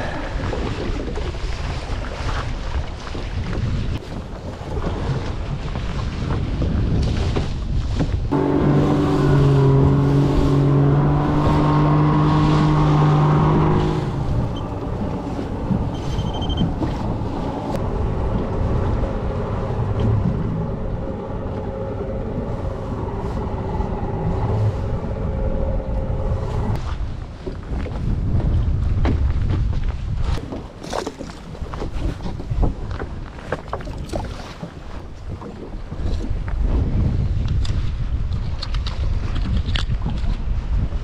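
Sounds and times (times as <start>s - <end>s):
water noise: 0.0s - 41.0s
wind: 0.0s - 41.0s
outboard motor running: 8.1s - 26.8s.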